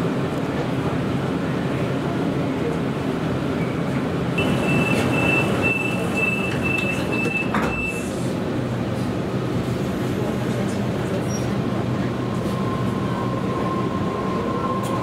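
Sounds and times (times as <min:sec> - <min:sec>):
train low hum: 0:00.0 - 0:15.0
train doors shutting: 0:03.5 - 0:15.0
high door warning beeps: 0:04.4 - 0:08.2.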